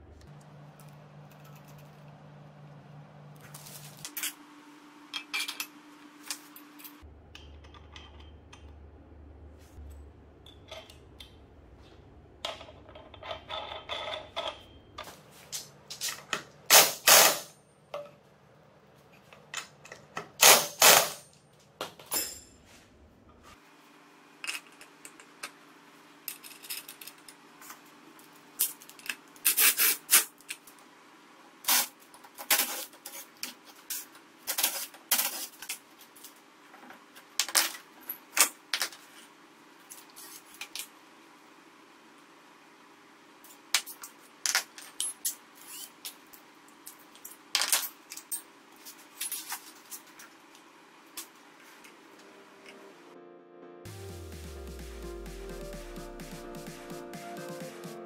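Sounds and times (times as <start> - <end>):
metal tools clinking and knocking: 5.1 - 5.7, 6.4 - 8.7, 12.4 - 15.0, 22.0 - 22.7.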